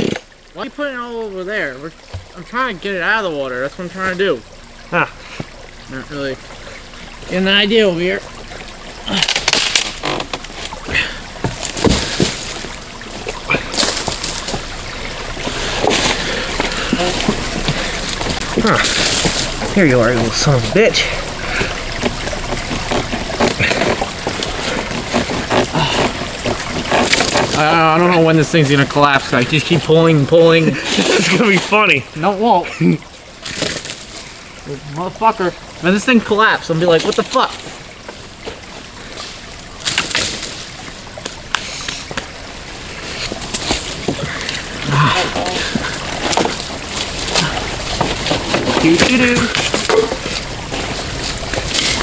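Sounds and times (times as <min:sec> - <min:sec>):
water splashing: 0:00.0 - 0:52.0
wooden knocks and snaps: 0:09.2 - 0:10.7
knocks and clatter: 0:45.7 - 0:52.0.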